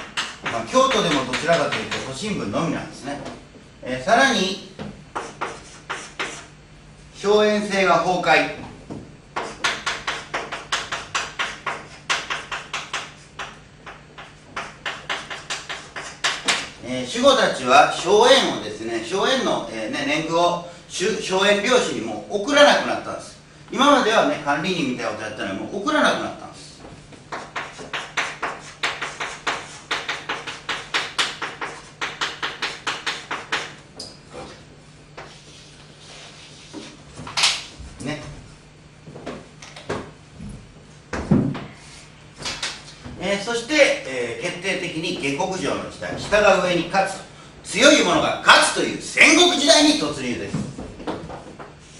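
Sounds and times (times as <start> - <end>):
chalk tapping on a chalkboard: 0.0 - 2.2, 4.8 - 6.5, 9.4 - 16.7, 27.1 - 34.6, 35.2 - 37.0.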